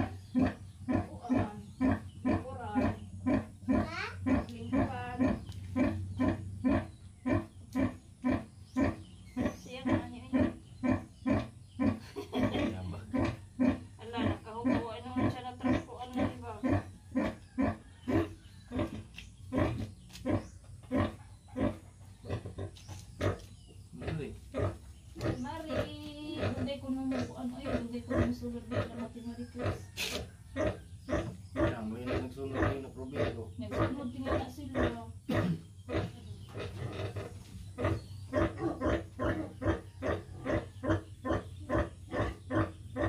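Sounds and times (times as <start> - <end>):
pig grunting: 0.0 - 43.0.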